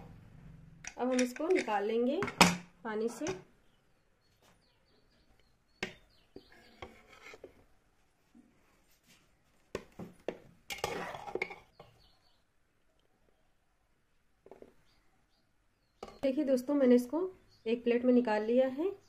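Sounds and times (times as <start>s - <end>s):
metal spoon clinking and scraping pot: 0.9s - 2.4s, 10.7s - 11.8s.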